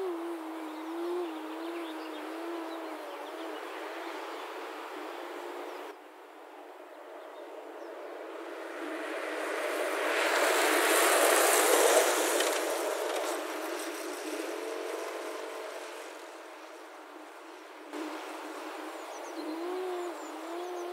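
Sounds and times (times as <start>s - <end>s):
faint propeller hum: 0.0s - 5.9s, 10.9s - 20.9s
car passing: 7.6s - 20.9s.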